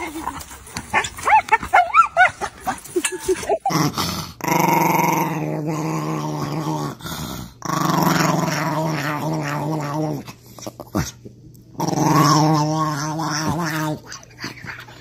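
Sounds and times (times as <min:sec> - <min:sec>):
small dog growling: 0:03.4 - 0:15.0.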